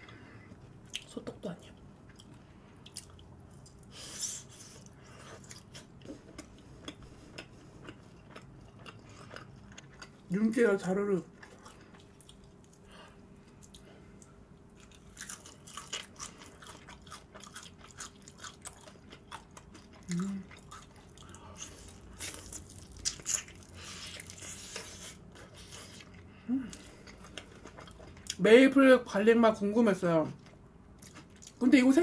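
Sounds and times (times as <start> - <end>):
crunchy chewing of fried chicken: 2.0 - 10.3, 11.2 - 28.4, 30.4 - 31.6
person humming mm: 20.1 - 20.5.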